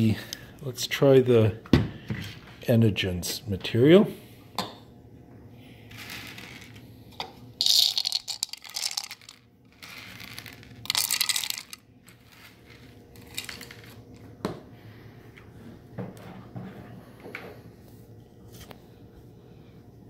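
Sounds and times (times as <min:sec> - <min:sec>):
corn kernels clattering into a cup: 0:05.9 - 0:06.8, 0:07.6 - 0:14.0.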